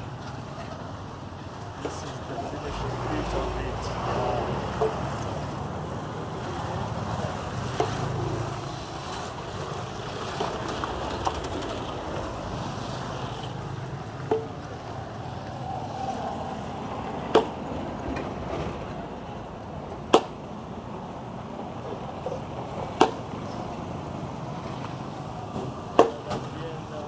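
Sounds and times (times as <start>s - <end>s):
street traffic noise: 0.0s - 27.0s
truck engine running: 1.9s - 8.5s.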